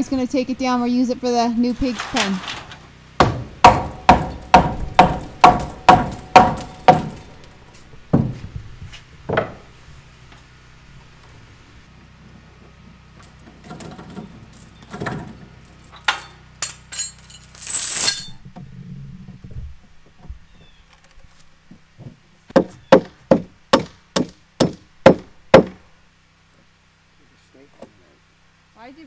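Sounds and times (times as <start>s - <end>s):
hammer striking wooden beam: 3.2s - 7.5s, 8.1s - 8.4s, 22.5s - 25.8s
metal chain clinking and rattling: 3.6s - 8.4s, 13.2s - 18.4s.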